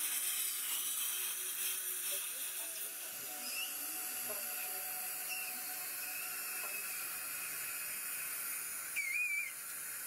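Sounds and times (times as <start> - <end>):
suction tip hissing: 0.0 - 10.0.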